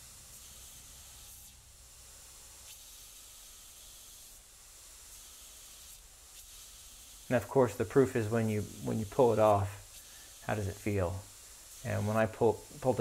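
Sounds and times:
belt grinder grinding steel: 0:05.0 - 0:13.0.

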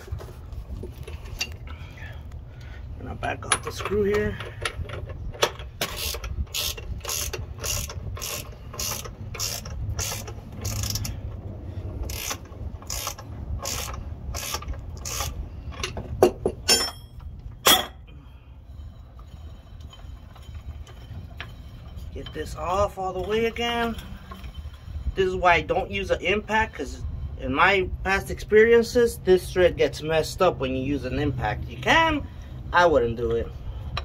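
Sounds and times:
hand ratchet clicking: 0:03.5 - 0:18.0
metal clinks: 0:13.8 - 0:25.4.

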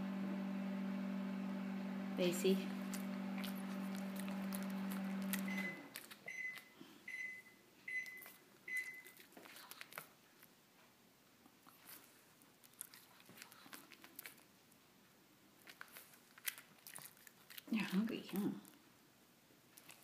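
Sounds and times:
microwave oven humming: 0:00.0 - 0:05.9
microwave beeping: 0:04.4 - 0:09.1.

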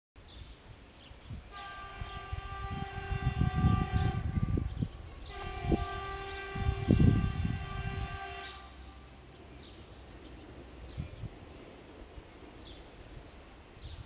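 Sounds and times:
low gusty rumble: 0:00.3 - 0:14.0
train horn blasts: 0:01.5 - 0:09.1.

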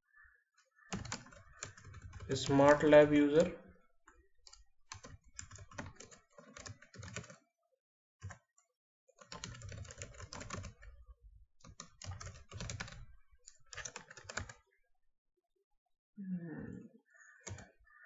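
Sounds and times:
typing on computer keyboard: 0:00.8 - 0:03.5, 0:04.4 - 0:07.5, 0:08.2 - 0:08.5, 0:09.2 - 0:11.0, 0:11.6 - 0:14.7, 0:17.3 - 0:17.8.

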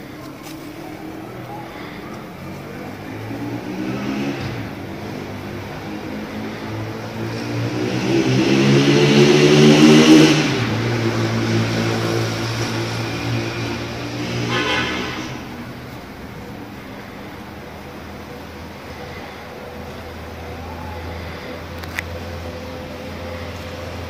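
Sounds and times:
low engine hum: 0:00.0 - 0:14.1, 0:15.5 - 0:24.0
motor vehicle passing: 0:00.0 - 0:24.0.

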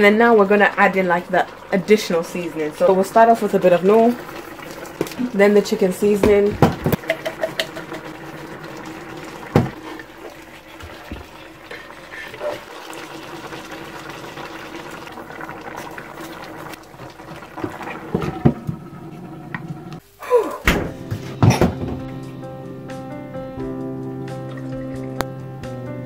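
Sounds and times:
water bubbling: 0:00.4 - 0:20.0.

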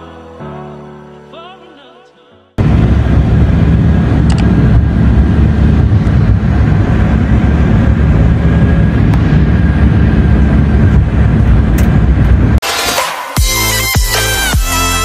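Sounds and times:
wind buffeting microphone: 0:02.6 - 0:12.6.

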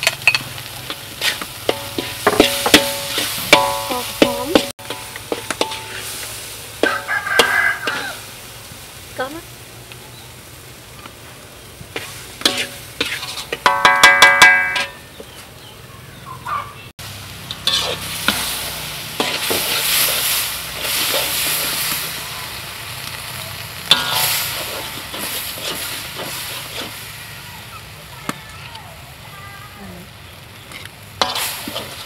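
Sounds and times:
metal spatula scraping wok: 0:00.0 - 0:08.4, 0:11.9 - 0:15.3, 0:17.4 - 0:22.6, 0:23.8 - 0:27.2, 0:30.6 - 0:32.0
paste sizzling while frying: 0:00.0 - 0:15.9, 0:17.0 - 0:32.0.

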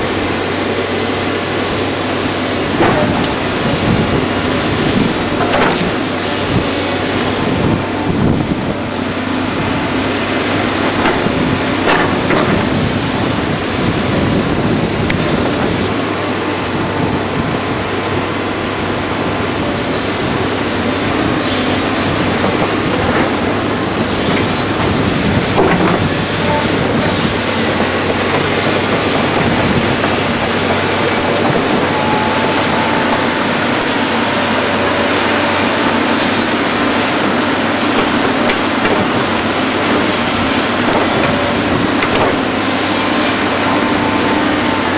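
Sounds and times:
excavator diesel engine running: 0:00.0 - 0:44.9
undercarriage clanks: 0:24.4 - 0:27.3, 0:40.4 - 0:42.6.

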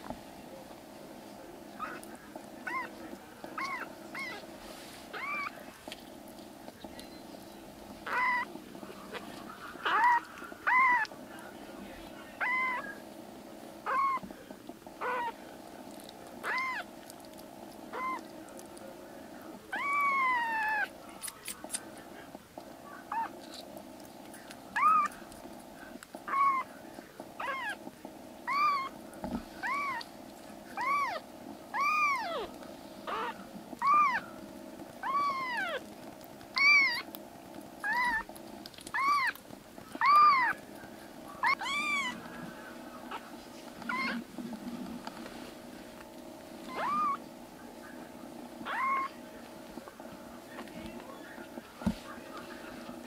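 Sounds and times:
steady hum: 0:00.0 - 0:53.0
kitten mewing: 0:01.8 - 0:04.5, 0:05.1 - 0:05.6, 0:08.0 - 0:08.5, 0:09.1 - 0:11.2, 0:12.4 - 0:13.0, 0:13.8 - 0:14.3, 0:15.0 - 0:15.4, 0:16.3 - 0:17.0, 0:17.9 - 0:18.3, 0:19.7 - 0:21.8, 0:23.1 - 0:23.6, 0:24.7 - 0:25.2, 0:26.2 - 0:26.7, 0:27.4 - 0:27.8, 0:28.4 - 0:29.0, 0:29.6 - 0:30.1, 0:30.8 - 0:34.3, 0:35.0 - 0:37.1, 0:37.8 - 0:40.6, 0:41.4 - 0:42.3, 0:43.0 - 0:44.3, 0:46.7 - 0:47.2, 0:48.6 - 0:49.2.

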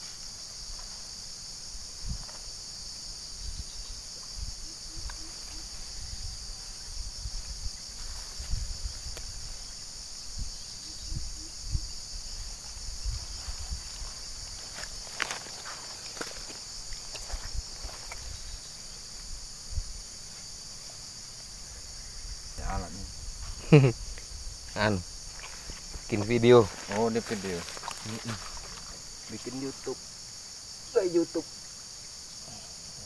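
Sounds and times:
insects buzzing: 0:00.0 - 0:33.0
footsteps in grass: 0:07.3 - 0:09.7, 0:12.3 - 0:19.3, 0:25.2 - 0:30.0.

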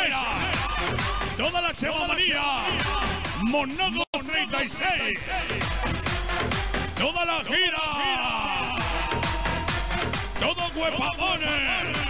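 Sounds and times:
person shouting with echo effect: 0:00.0 - 0:03.9, 0:07.2 - 0:12.0
electronic dance music: 0:00.0 - 0:12.0.

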